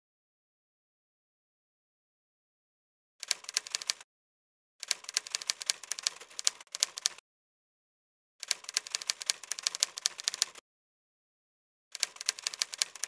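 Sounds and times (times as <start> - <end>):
typewriter keys clacking: 3.2 - 4.0, 4.8 - 7.2, 8.4 - 10.6, 12.0 - 13.0.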